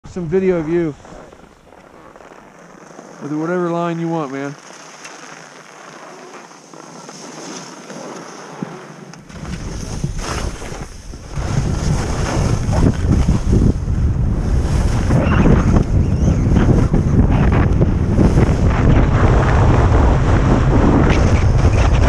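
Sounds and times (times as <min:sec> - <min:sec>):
wind buffeting microphone: 0:00.0 - 0:01.7, 0:09.3 - 0:22.0
skis hissing over snow: 0:00.3 - 0:13.7.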